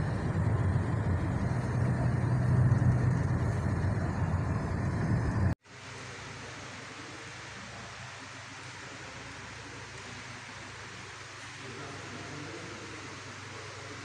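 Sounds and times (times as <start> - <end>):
van engine and road noise: 0.0 - 5.6
steady hiss: 5.6 - 14.0.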